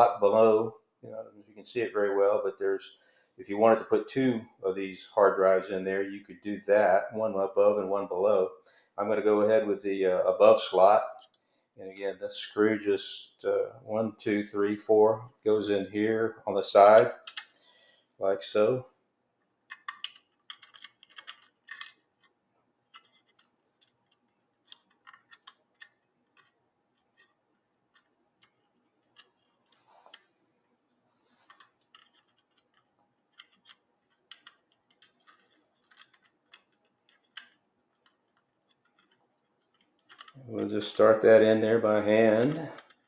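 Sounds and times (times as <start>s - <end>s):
small screws clicking and scraping: 19.7s - 30.4s, 31.3s - 41.1s, 42.3s - 43.0s.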